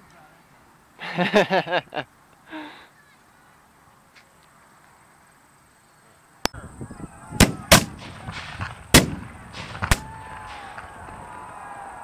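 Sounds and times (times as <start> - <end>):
cannons firing: 7.4 - 11.2.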